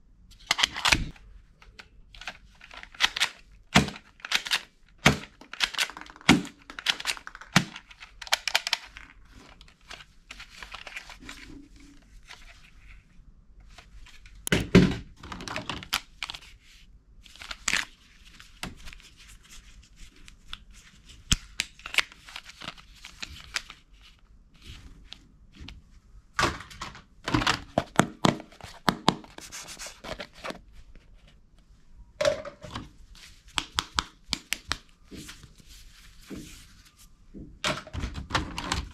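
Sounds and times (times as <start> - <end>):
plastic toy guns rattling in a box: 2.2 - 9.1.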